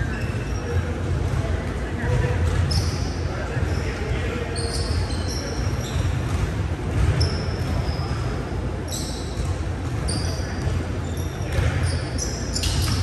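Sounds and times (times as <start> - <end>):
shoes squeaking on hardwood court: 0.0 - 1.4, 2.1 - 13.0
basketball bouncing: 0.6 - 2.9, 5.8 - 7.9, 9.2 - 10.8, 11.5 - 11.9.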